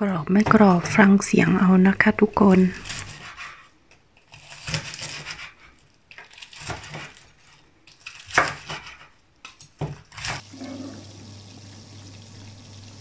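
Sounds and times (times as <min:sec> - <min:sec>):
knife crunching through fried crust: 0:02.8 - 0:03.6, 0:04.2 - 0:10.4.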